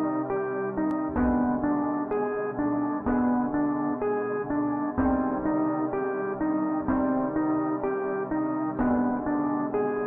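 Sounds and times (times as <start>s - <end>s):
plucked-string melody: 0.0s - 10.0s.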